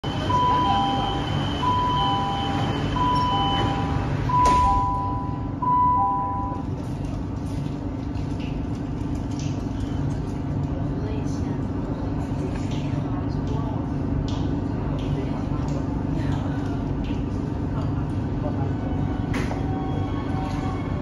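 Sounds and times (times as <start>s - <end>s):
two-tone warning beep: 0.0s - 6.6s
train car low hum: 0.0s - 21.0s.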